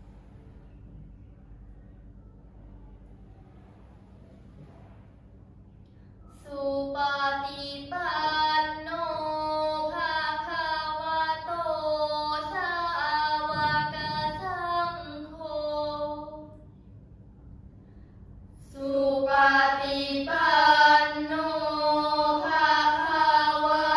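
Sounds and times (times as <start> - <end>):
girls chanting in unison: 18.7 - 23.9.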